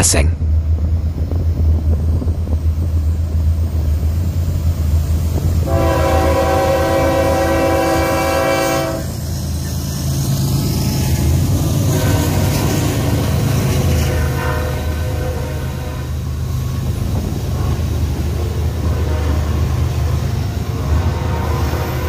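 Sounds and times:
train engine rumble: 0.0 - 22.0
locomotive air horn: 5.6 - 9.2, 11.9 - 12.7, 13.9 - 16.2, 18.7 - 20.1, 20.8 - 22.0.

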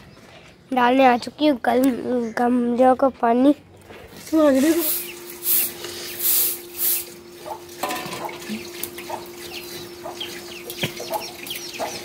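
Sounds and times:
water dripping: 6.6 - 12.0.

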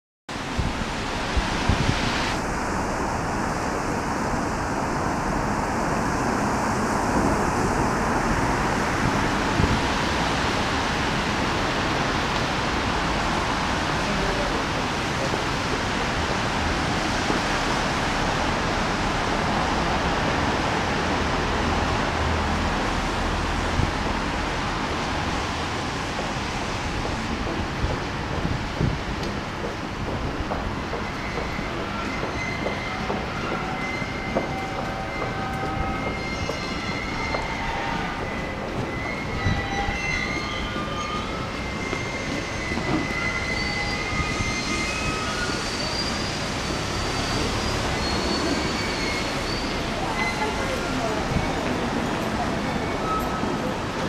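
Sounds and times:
rain: 0.3 - 39.5, 40.1 - 54.0
car tyres on wet road: 0.4 - 32.9.

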